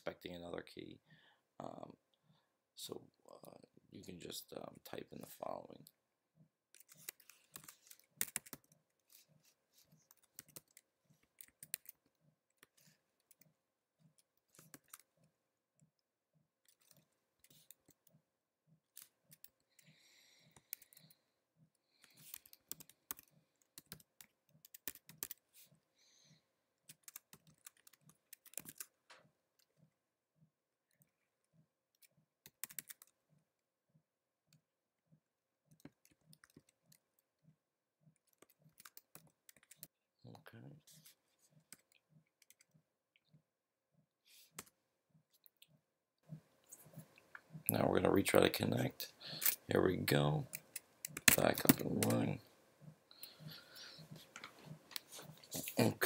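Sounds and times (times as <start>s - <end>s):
keyboard typing: 6.7s - 16.0s, 18.8s - 25.6s, 26.8s - 29.8s, 31.9s - 33.2s, 35.7s - 37.2s, 38.1s - 39.9s, 41.6s - 42.8s, 50.3s - 52.4s.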